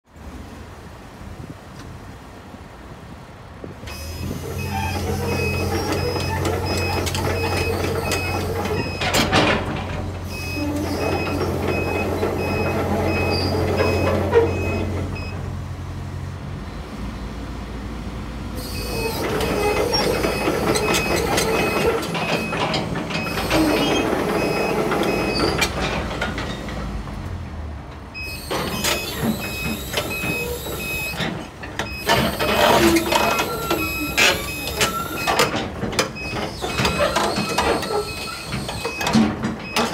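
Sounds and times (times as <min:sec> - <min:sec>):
excavator engine and hydraulics: 0:00.2 - 0:39.9
high-pitched beeping alarm: 0:04.0 - 0:09.2, 0:10.3 - 0:15.4, 0:18.6 - 0:25.5, 0:28.2 - 0:31.2, 0:32.0 - 0:35.5, 0:36.2 - 0:39.8.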